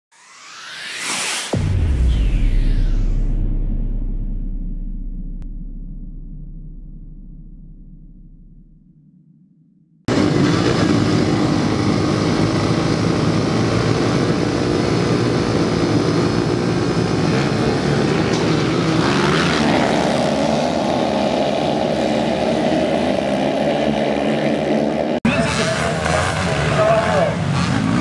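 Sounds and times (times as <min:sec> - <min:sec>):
dirt bike engines racing: 0:10.1 - 0:28.0
high steady engine note: 0:10.1 - 0:28.0.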